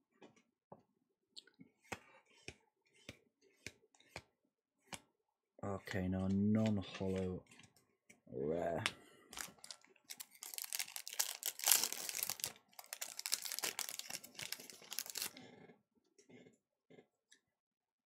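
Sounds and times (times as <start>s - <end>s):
cards ticking: 9.3s - 15.4s
foil wrapper tearing and crinkling: 9.4s - 15.4s.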